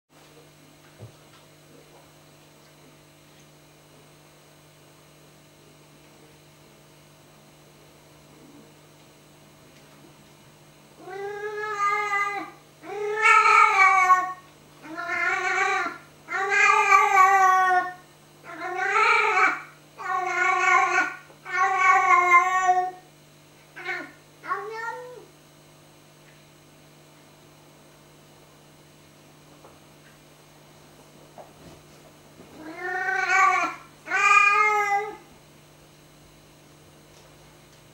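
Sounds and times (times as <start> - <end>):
steady low hum: 0.2 - 37.9
cat meowing: 11.0 - 23.0, 23.8 - 25.2, 32.6 - 35.2.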